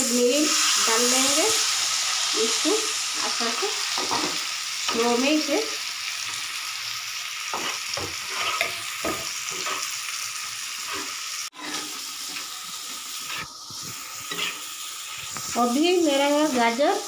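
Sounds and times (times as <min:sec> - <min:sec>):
carrots sizzling in a frying pan: 0:00.0 - 0:17.0
spatula scraping a pan: 0:07.5 - 0:10.0, 0:10.8 - 0:16.8.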